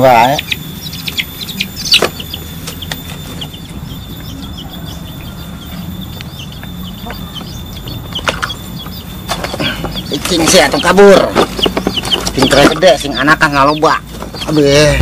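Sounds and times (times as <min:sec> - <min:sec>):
steady low rumble: 0:00.0 - 0:12.2
bird chirps: 0:00.0 - 0:15.0.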